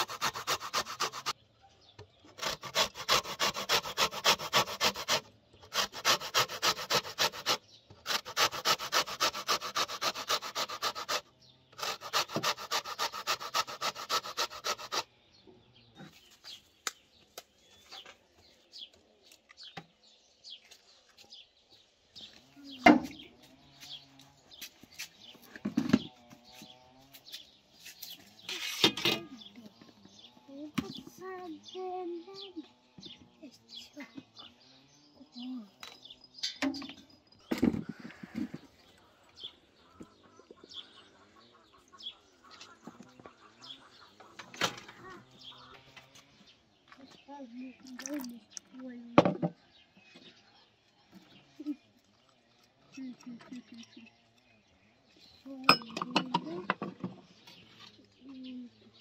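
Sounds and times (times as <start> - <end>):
peel grated on metal grater: 0.0 - 1.3, 2.4 - 11.2, 11.8 - 15.0.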